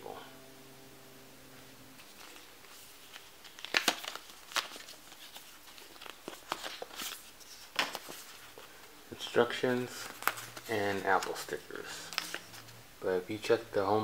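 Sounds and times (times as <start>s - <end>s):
paper packaging rustling: 2.0s - 12.8s.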